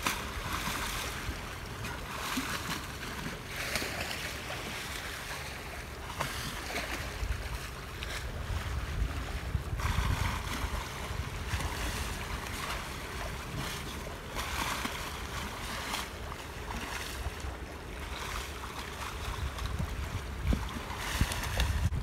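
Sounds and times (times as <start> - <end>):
seawater splashing against ship bow: 0.0 - 22.0
wind rumble on microphone: 6.1 - 16.0, 16.6 - 22.0.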